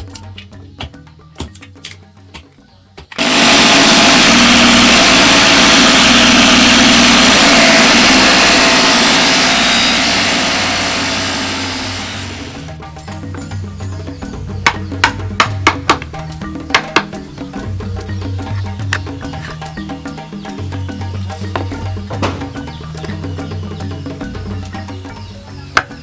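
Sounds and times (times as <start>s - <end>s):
disc grinding wood: 3.2s - 13.4s.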